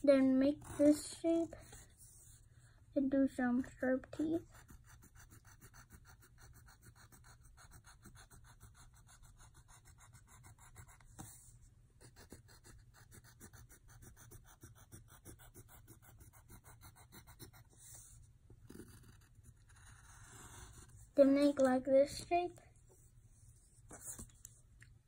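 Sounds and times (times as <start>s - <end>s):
pencil scratching on paper: 0.2s - 2.5s, 4.1s - 21.4s.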